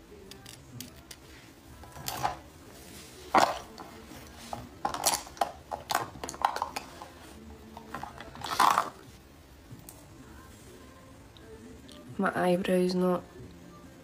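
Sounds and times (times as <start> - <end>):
makeup items clinking and rattling: 3.3 - 7.2, 7.8 - 9.0.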